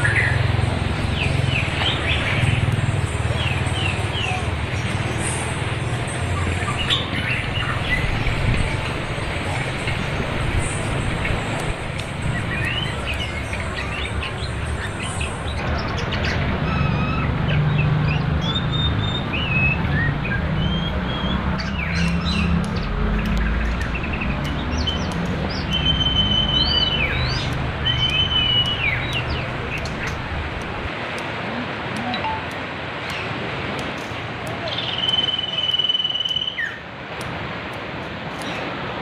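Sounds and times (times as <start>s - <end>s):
songbirds singing: 0.0s - 31.3s, 32.0s - 33.4s, 34.4s - 36.8s
flowing river water: 0.0s - 39.0s.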